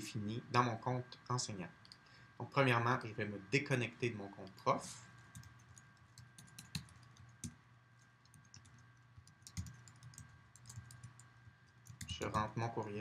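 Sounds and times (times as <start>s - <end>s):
faint steady hum: 0.0s - 13.0s
typing on computer keyboard: 5.2s - 12.5s.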